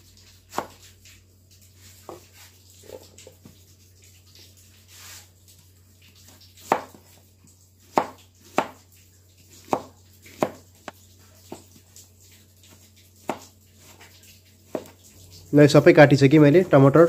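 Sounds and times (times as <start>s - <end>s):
knife chopping on cutting board: 0.5s - 0.9s, 6.6s - 7.1s, 7.9s - 8.8s, 9.5s - 11.7s, 13.2s - 14.0s, 14.7s - 15.0s.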